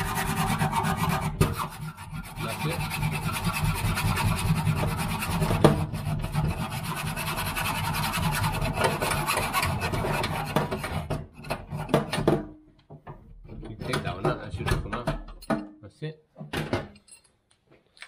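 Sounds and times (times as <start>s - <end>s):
hacksaw sawing through pipe: 0.0s - 12.3s.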